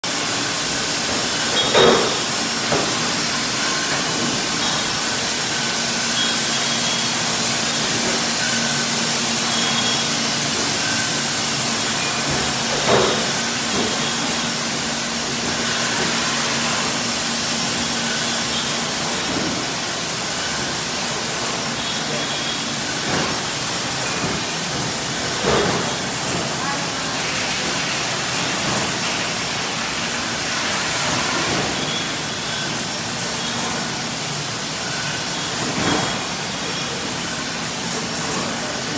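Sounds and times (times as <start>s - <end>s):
machine hiss: 0.1s - 38.9s
glass bottles clinking: 1.1s - 5.1s.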